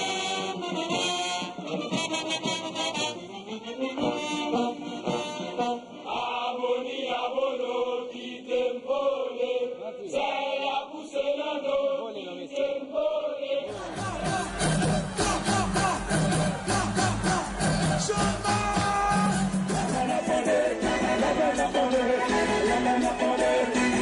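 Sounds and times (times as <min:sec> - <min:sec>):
group of voices chanting: 0:06.0 - 0:24.0
band music with heavy beat: 0:13.7 - 0:24.0.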